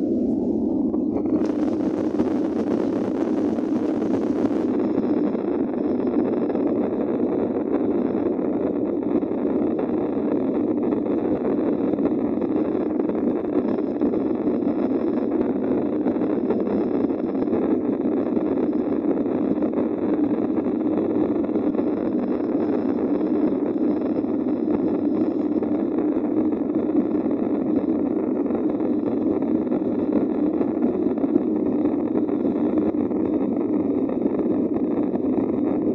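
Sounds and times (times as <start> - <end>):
jet engines and air rushing: 0.0 - 5.8.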